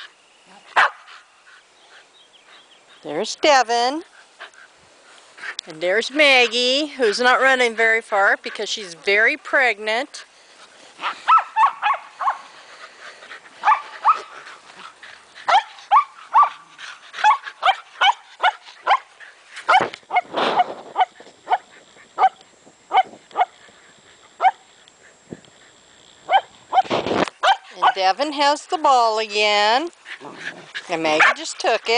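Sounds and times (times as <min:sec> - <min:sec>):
dog barking high-pitched: 0:00.8 - 0:01.0, 0:11.2 - 0:12.4, 0:13.6 - 0:14.3, 0:15.5 - 0:16.6, 0:26.3 - 0:28.0.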